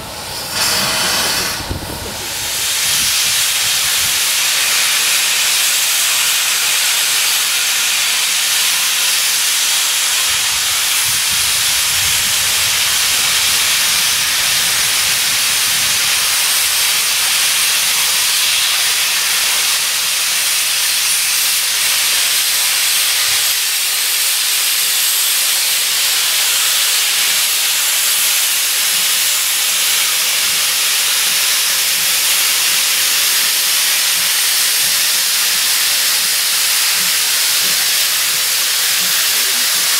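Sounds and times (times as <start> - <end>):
low rumble: 0.0 - 3.2
locomotive steam hissing: 0.0 - 39.9.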